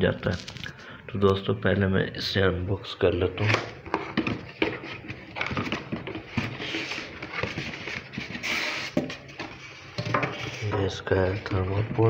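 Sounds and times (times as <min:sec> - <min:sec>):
cardboard flaps rustling and scraping: 0:03.4 - 0:12.0.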